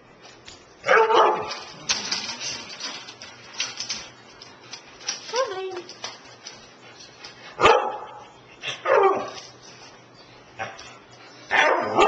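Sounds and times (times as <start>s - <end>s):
dog barking: 0.9s - 1.5s, 7.6s - 8.2s, 8.8s - 9.3s, 11.5s - 12.0s.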